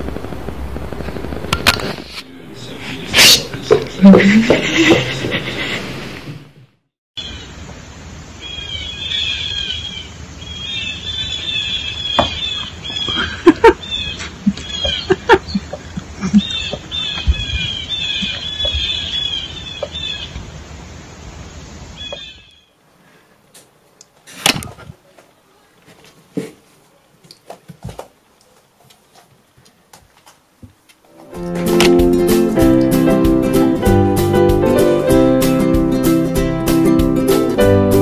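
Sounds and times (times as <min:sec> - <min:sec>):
small birds chirping: 0:08.3 - 0:22.8.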